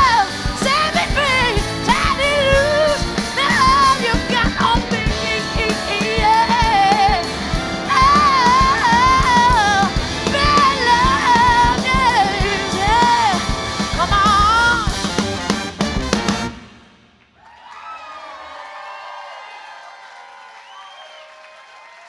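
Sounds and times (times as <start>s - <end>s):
woman singing lead: 0.0s - 15.1s
baritone saxophone: 0.0s - 16.7s
bass guitar: 0.0s - 16.7s
electric guitar: 0.0s - 16.8s
trumpet: 0.0s - 17.1s
drums: 0.0s - 17.7s.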